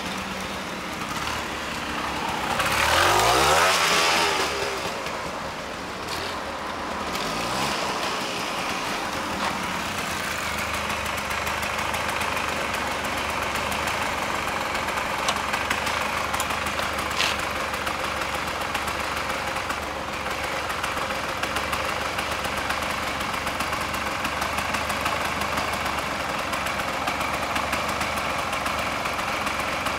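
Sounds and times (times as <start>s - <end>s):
two-stroke engine idling: 0.0s - 29.9s.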